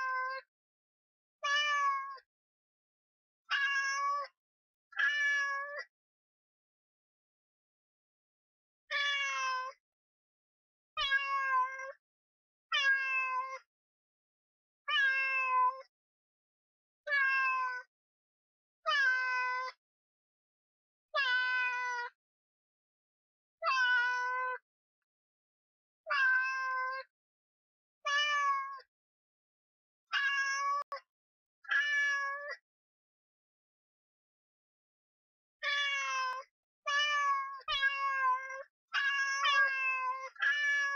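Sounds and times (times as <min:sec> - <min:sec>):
cat meowing: 0:01.5 - 0:02.1, 0:03.5 - 0:04.2, 0:05.0 - 0:05.8, 0:08.9 - 0:09.6, 0:12.7 - 0:13.6, 0:14.9 - 0:15.8, 0:17.1 - 0:17.8, 0:26.1 - 0:27.0, 0:28.1 - 0:28.8, 0:30.1 - 0:31.0, 0:31.7 - 0:32.6, 0:35.6 - 0:40.9.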